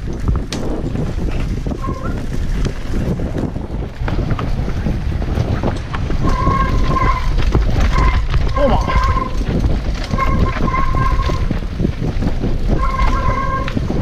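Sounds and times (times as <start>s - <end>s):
bike rattling over rough ground: 0.0s - 14.0s
wind buffeting microphone: 0.0s - 14.0s
steady high squeal: 6.2s - 11.6s, 12.7s - 14.0s.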